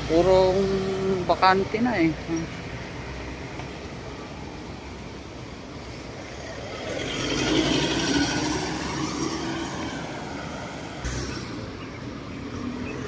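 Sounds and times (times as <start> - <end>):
vehicle passing by: 5.8 - 13.0.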